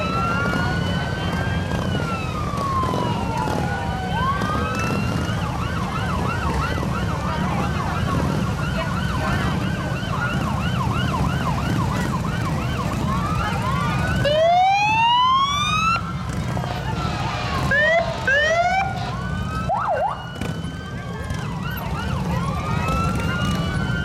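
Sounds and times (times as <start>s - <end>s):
motorcycle engines rumbling: 0.0s - 24.0s
police sirens yelping: 0.0s - 24.0s
siren rising wail: 0.0s - 24.0s.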